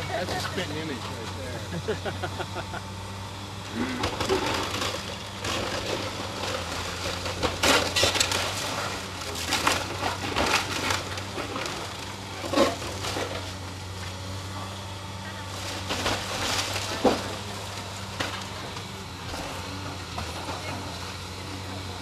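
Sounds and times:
excavator engine running: 0.0s - 22.0s
wood cracking and splintering: 3.8s - 14.2s, 15.4s - 21.2s.

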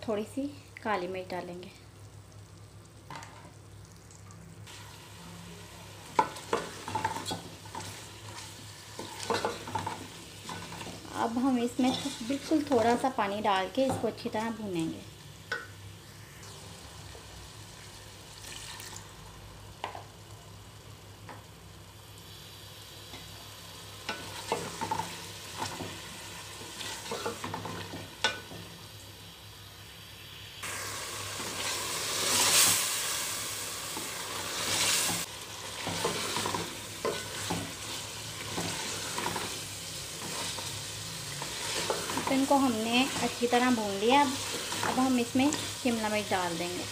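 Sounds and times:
food sizzling in a pot: 0.0s - 46.9s
wooden spoon scraping a pot: 11.8s - 12.7s.

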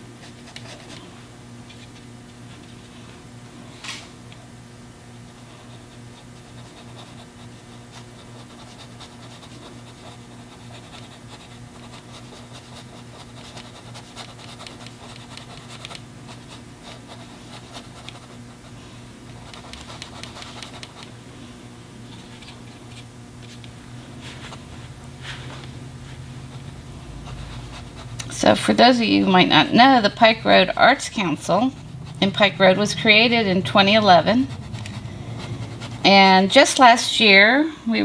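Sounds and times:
steady low hum: 0.0s - 38.0s
paintbrush scratching on canvas: 5.3s - 18.8s, 19.4s - 21.1s, 24.2s - 36.7s.

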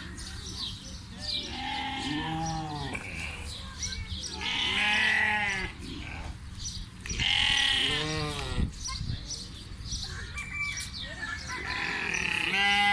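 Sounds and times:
goats bleating: 1.4s - 3.6s, 4.4s - 6.4s, 7.0s - 8.6s, 11.6s - 12.9s.

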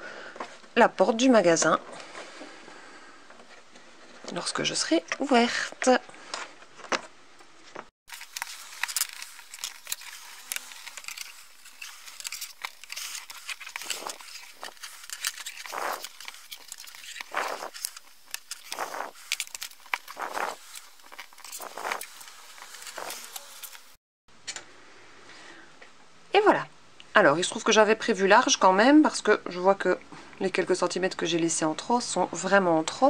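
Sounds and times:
wire rustling on paper: 7.7s - 24.0s
loud scrapes on paper: 8.4s - 24.0s.

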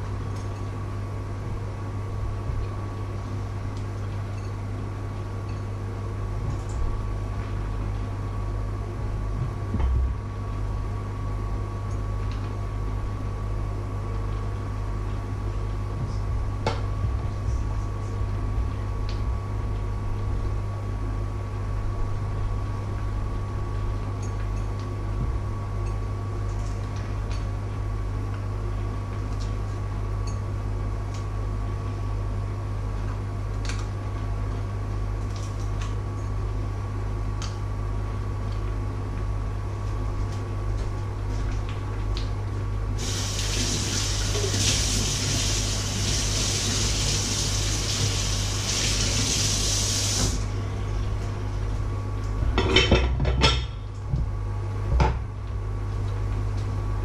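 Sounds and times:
steady low hum: 0.0s - 57.0s
tap water running: 43.0s - 50.4s.

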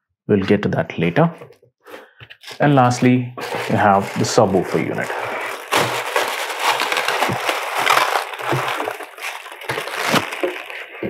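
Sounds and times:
plastic wrapping crinkling: 2.3s - 11.0s.

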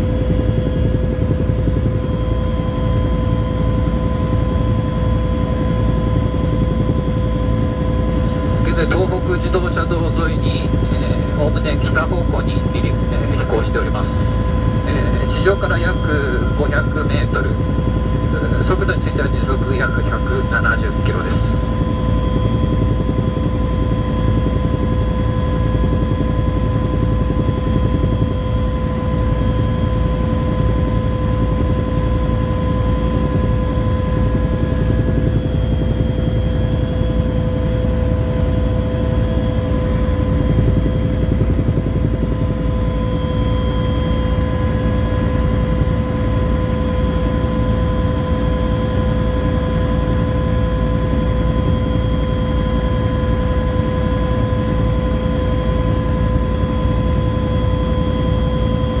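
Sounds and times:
helicopter rotor beat: 0.0s - 59.0s
turbine engine whine: 0.0s - 59.0s.

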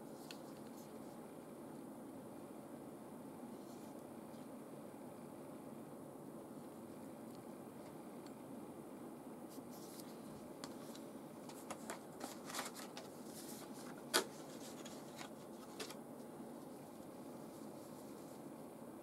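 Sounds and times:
low background noise: 0.0s - 19.0s
paper rustling: 9.5s - 16.0s.

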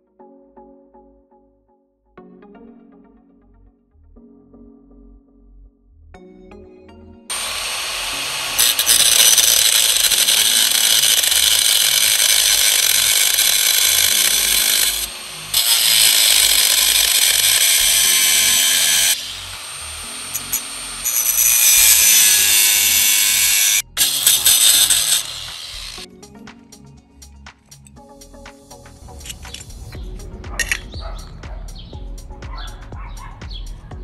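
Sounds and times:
power tool running: 7.3s - 26.1s.

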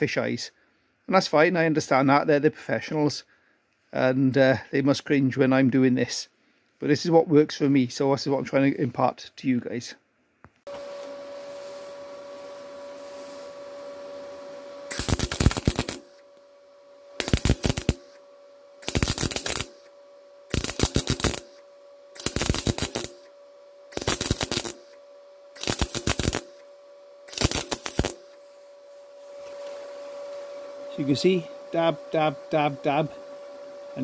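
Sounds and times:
steady hum: 10.5s - 34.0s
welding arc crackle: 14.9s - 16.4s, 17.2s - 28.5s.

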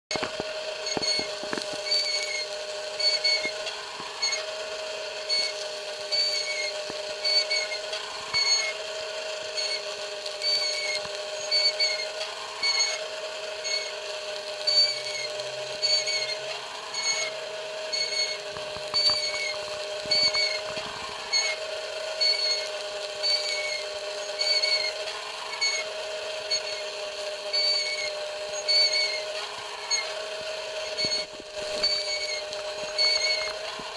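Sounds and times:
high squeak of turning spit: 0.1s - 33.9s
rotisserie motor humming: 0.1s - 33.9s.

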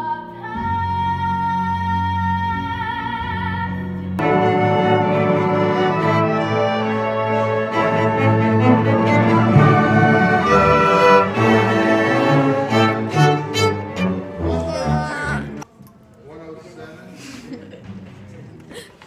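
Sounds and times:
string orchestra playing: 4.2s - 15.6s
violin: 4.2s - 15.6s
person singing with vibrato: 14.3s - 15.6s.

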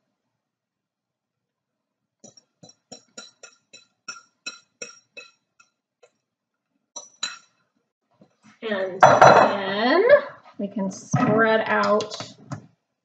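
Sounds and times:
utensil tapping glass bowl: 2.6s - 5.3s, 7.0s - 7.5s.

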